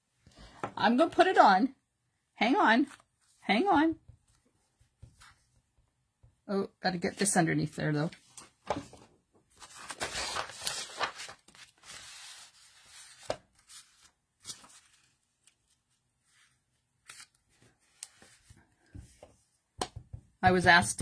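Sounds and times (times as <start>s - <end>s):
paper rustling and sliding: 8.2s - 19.3s.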